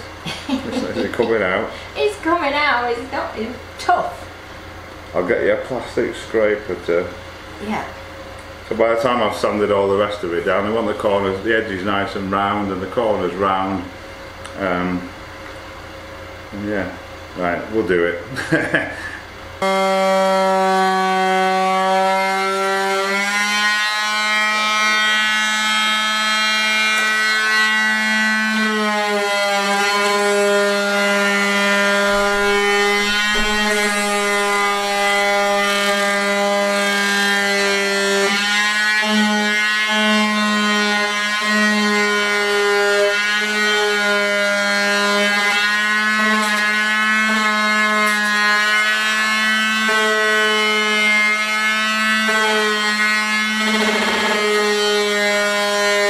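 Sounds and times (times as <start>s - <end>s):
electric router whining: 19.6s - 56.0s.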